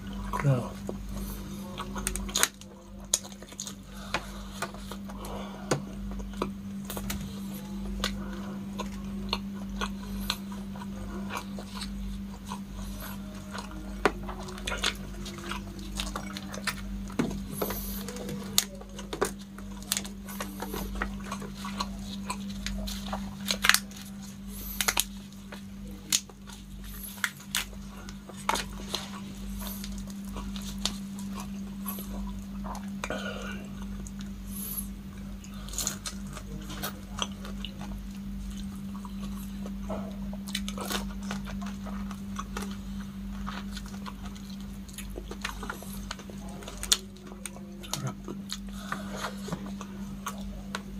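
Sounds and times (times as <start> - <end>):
wet chewing and lip smacks: 35.2 - 50.9.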